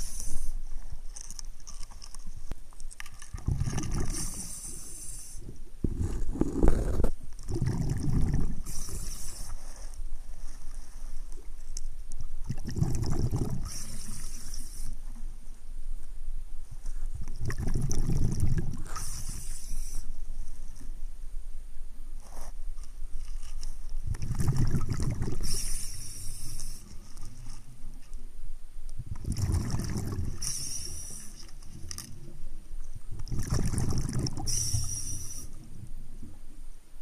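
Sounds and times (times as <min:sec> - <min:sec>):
diver breathing in hiss: 0:00.0 - 0:00.7, 0:04.1 - 0:05.5, 0:08.6 - 0:10.0, 0:13.6 - 0:15.0, 0:18.8 - 0:20.2, 0:25.4 - 0:27.0, 0:30.3 - 0:31.5, 0:34.4 - 0:35.6
bubbles bursting on exhale: 0:03.4 - 0:04.6, 0:05.9 - 0:09.0, 0:12.5 - 0:14.2, 0:17.4 - 0:19.4, 0:24.1 - 0:25.8, 0:29.2 - 0:30.6, 0:33.2 - 0:34.8.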